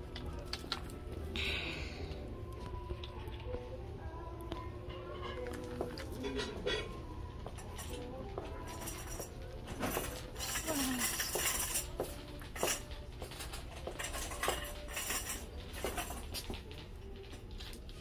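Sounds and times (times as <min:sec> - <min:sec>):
metal clinks and rattles: 0:04.9 - 0:18.0.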